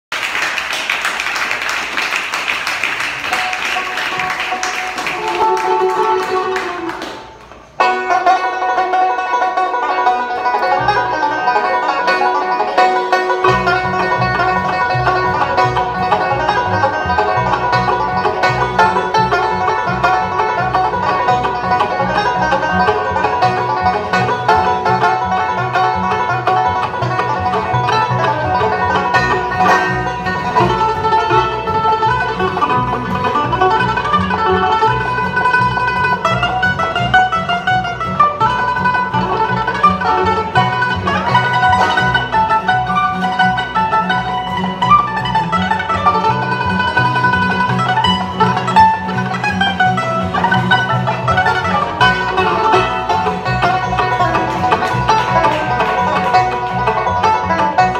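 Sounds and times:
audience applause: 0:00.0 - 0:07.7, 0:50.3 - 0:57.9
bluegrass band playing: 0:00.1 - 0:57.9
upright bass: 0:03.2 - 0:57.9.

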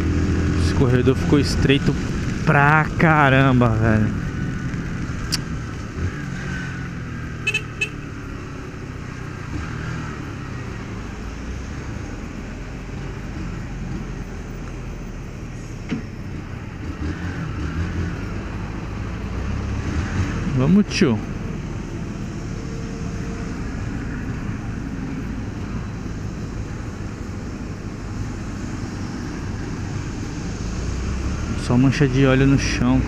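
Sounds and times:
horn toots: 0:07.4 - 0:08.2.

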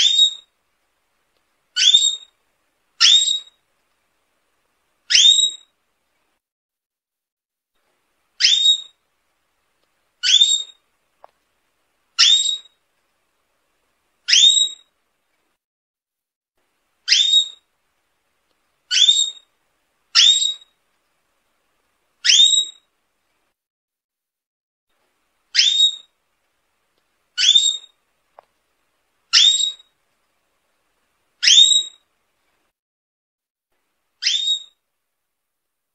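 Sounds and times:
canary whistled calls: 0:00.0 - 0:00.5, 0:01.8 - 0:02.3, 0:03.0 - 0:03.6, 0:05.1 - 0:05.7, 0:08.4 - 0:09.0, 0:10.2 - 0:10.8, 0:12.2 - 0:12.8, 0:14.3 - 0:14.9, 0:17.0 - 0:17.6, 0:18.9 - 0:19.5, 0:20.1 - 0:20.7, 0:22.2 - 0:22.9, 0:25.5 - 0:26.2, 0:27.4 - 0:28.0, 0:29.3 - 0:29.9, 0:31.4 - 0:32.0, 0:34.2 - 0:34.8.

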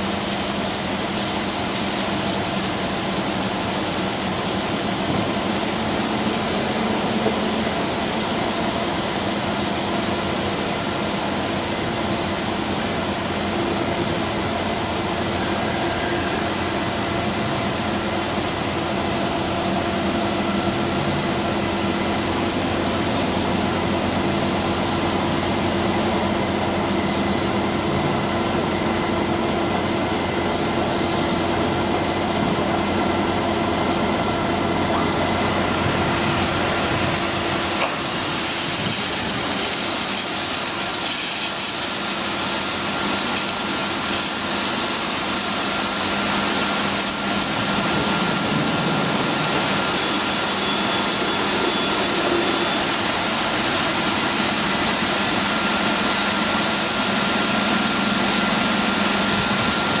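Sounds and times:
water jets hissing spray: 0:00.0 - 0:15.7, 0:36.0 - 1:00.0
truck engine humming: 0:30.1 - 1:00.0
thin high whine: 0:34.3 - 1:00.0.

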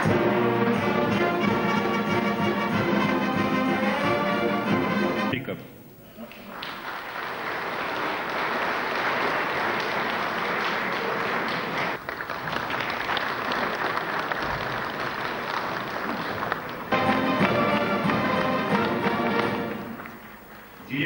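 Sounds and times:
audience applauding: 0:06.2 - 0:21.0.

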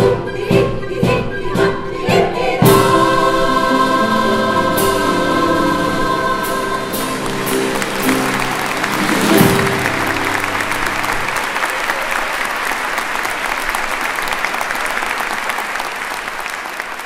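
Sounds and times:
choir and piano chord: 0:02.0 - 0:11.4
audience applauding: 0:06.8 - 0:17.0.

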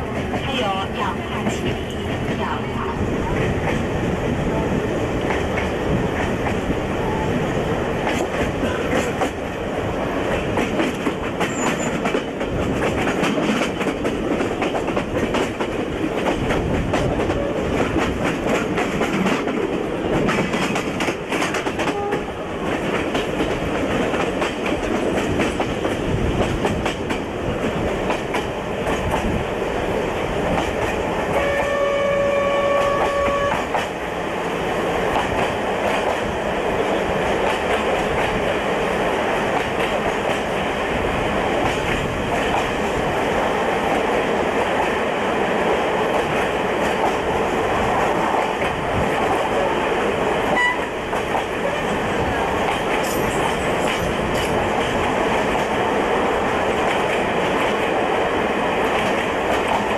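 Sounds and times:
train rumbling: 0:00.0 - 0:59.9
train horn: 0:21.8 - 0:22.4, 0:31.3 - 0:33.8, 0:50.5 - 0:50.9.

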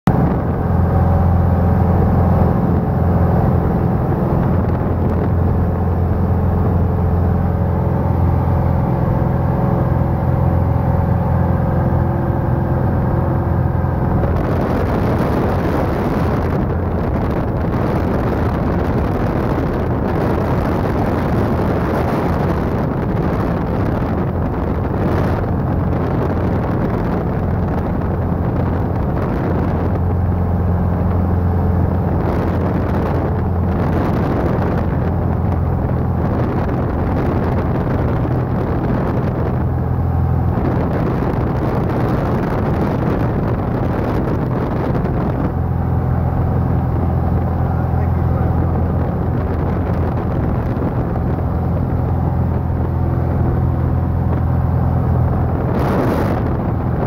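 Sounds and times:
airplane engine droning: 0:00.0 - 0:57.0
rushing air noise: 0:00.1 - 0:57.0.

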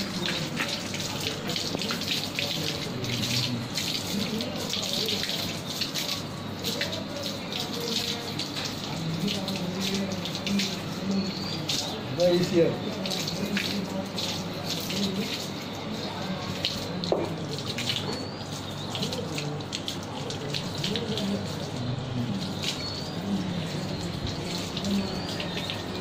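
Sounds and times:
hose water splashing on concrete: 0:00.0 - 0:26.0
small splashes and drips: 0:00.0 - 0:26.0.

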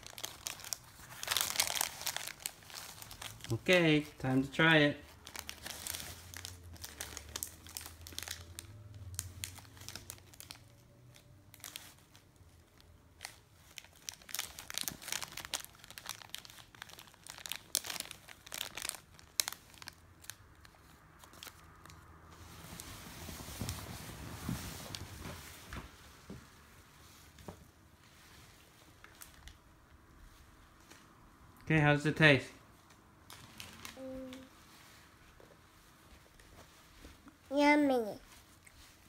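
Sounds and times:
plastic snack pouch crinkling: 0:00.0 - 0:04.5, 0:05.2 - 0:12.2, 0:13.2 - 0:22.0.

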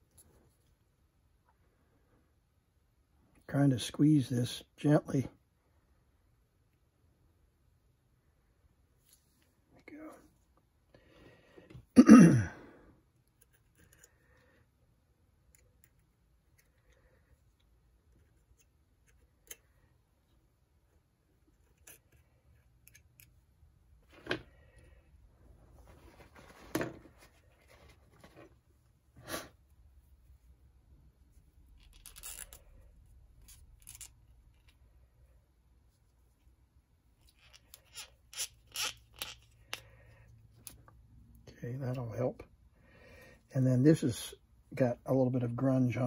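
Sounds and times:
light scratching and scraping: 0:25.5 - 0:30.6.

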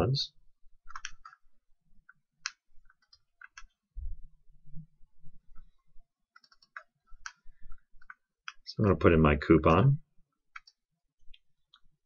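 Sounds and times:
mouse and keyboard clicks: 0:00.8 - 0:01.4, 0:02.1 - 0:03.8, 0:06.4 - 0:07.4, 0:08.0 - 0:08.6, 0:10.5 - 0:11.9.

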